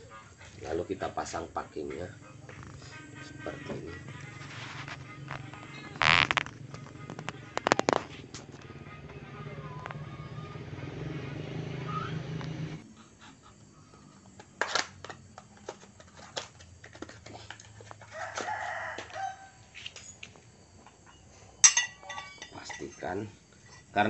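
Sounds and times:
steady low hum: 0.0 - 14.2
bird call: 11.6 - 14.2
metal engine parts clicking: 21.6 - 24.0.

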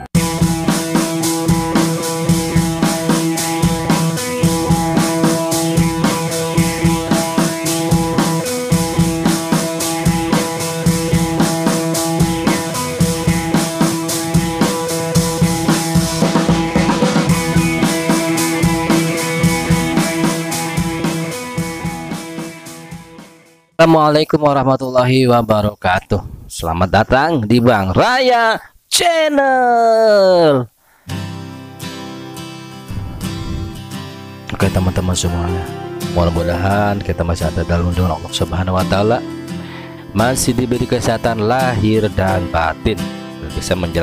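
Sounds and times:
drum kit beat: 0.0 - 23.5
held synth notes: 35.3 - 37.6.

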